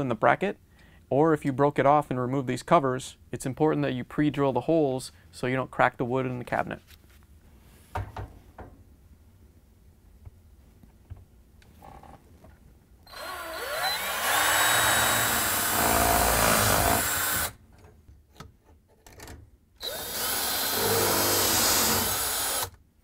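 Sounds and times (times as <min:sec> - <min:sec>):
cordless drill boring into wood: 0:13.1 - 0:17.6, 0:19.8 - 0:22.8.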